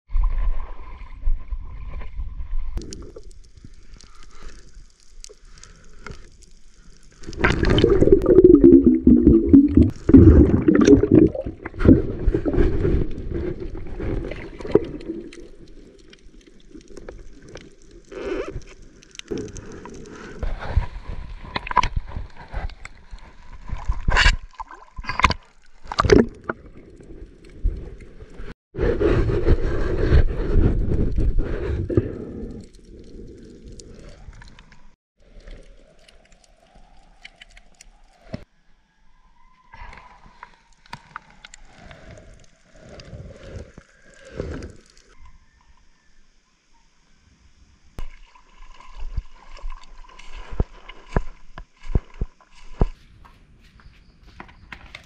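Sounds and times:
water gurgling underwater: 7.2 - 17.8, 23.6 - 28.0.

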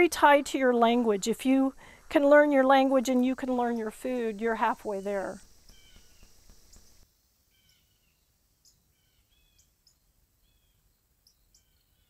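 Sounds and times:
faint bird chirps: 3.4 - 12.0.

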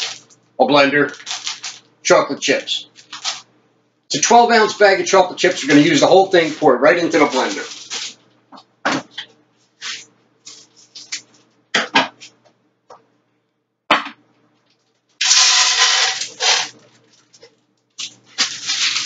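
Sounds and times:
chocolate chips pouring into jar: 0.0 - 0.2, 1.1 - 1.8, 3.0 - 3.4, 7.2 - 8.2, 15.2 - 16.8, 18.4 - 19.0
plastic bag crinkling: 0.0 - 3.5, 4.4 - 8.2, 14.8 - 19.0.

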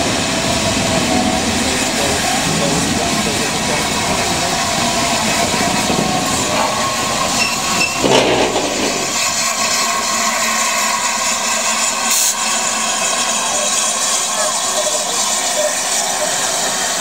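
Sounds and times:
steam locomotive hissing and running: 0.0 - 17.0
locomotive knock: 5.0 - 10.3.

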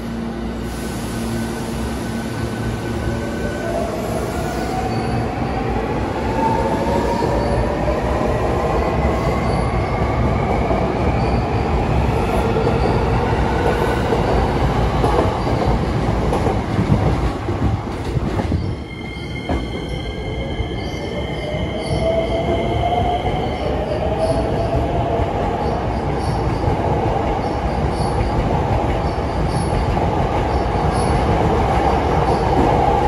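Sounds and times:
train wheels on rails: 0.0 - 20.2, 21.4 - 33.0.

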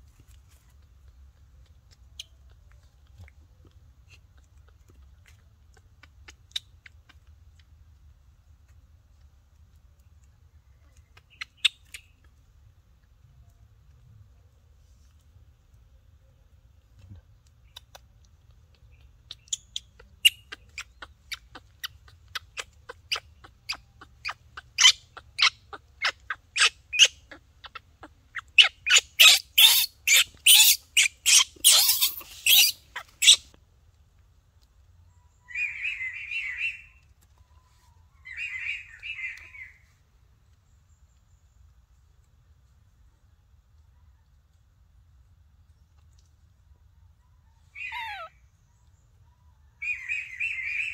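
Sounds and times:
harsh buzzy calls: 20.2 - 33.4.

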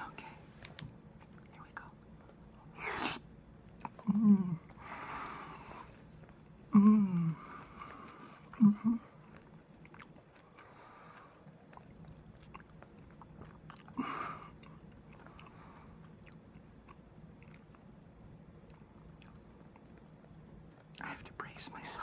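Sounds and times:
person chewing food: 3.6 - 6.8, 7.4 - 21.0.

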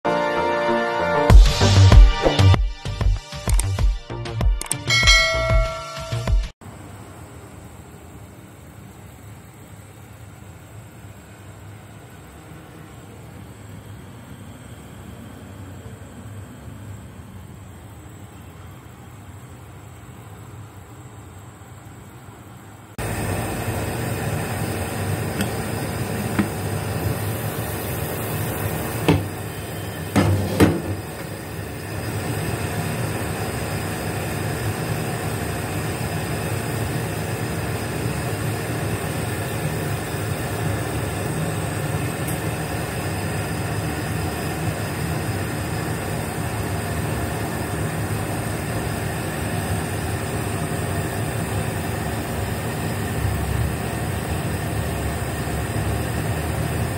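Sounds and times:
steam rushing over boiling water: 23.0 - 56.9.

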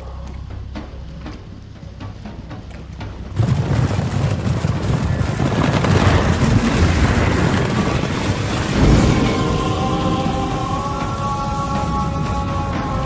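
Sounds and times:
low rumbling roar: 3.4 - 12.2.

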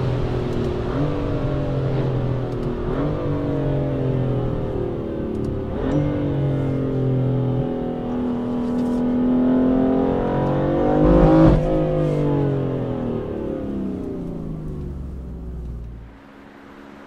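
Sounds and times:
car engine accelerating: 0.0 - 16.3.

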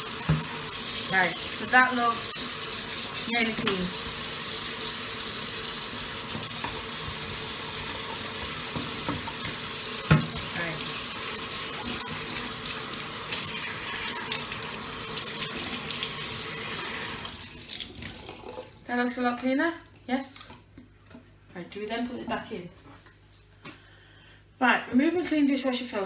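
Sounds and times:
tap running into sink: 0.2 - 0.7, 3.5 - 4.2, 6.2 - 10.6.

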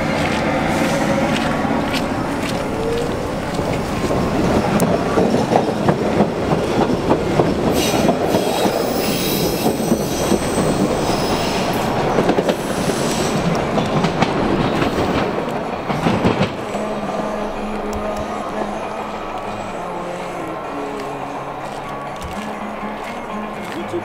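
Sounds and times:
train wheels clacking on rails: 0.0 - 24.0
high wheel squeal: 7.5 - 13.6.

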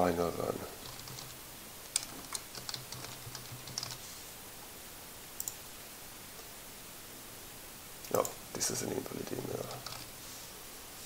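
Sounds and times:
typing on computer keyboard: 0.8 - 4.0, 9.7 - 10.1.

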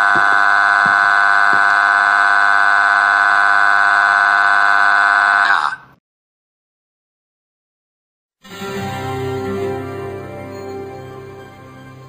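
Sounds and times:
synthetic voice droning aaaa: 0.0 - 5.8.

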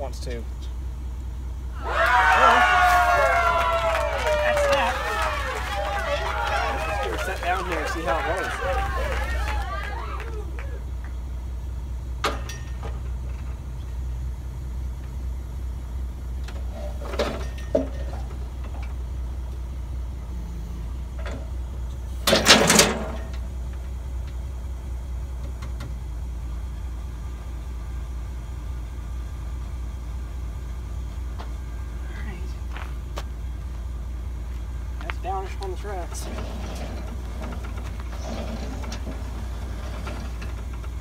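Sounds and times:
sawmill engine humming: 0.0 - 41.0
loud clatter: 22.2 - 23.6, 36.1 - 41.0.

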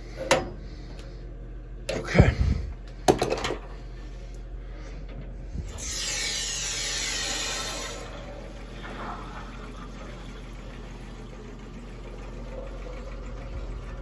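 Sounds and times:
steady low hum: 0.0 - 14.0
water rushing into tank: 5.7 - 11.3.

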